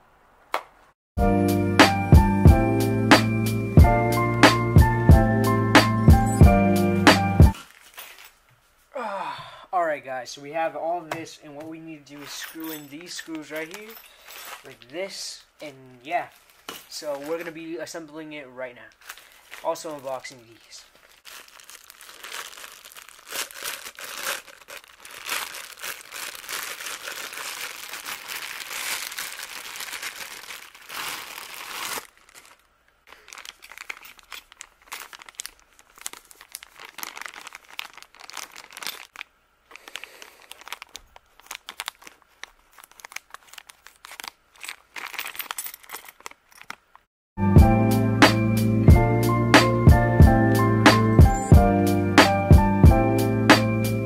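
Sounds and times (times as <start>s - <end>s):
plastic bags crinkling and tearing: 7.5s - 8.5s, 12.1s - 15.1s, 15.7s - 17.8s, 18.8s - 46.9s.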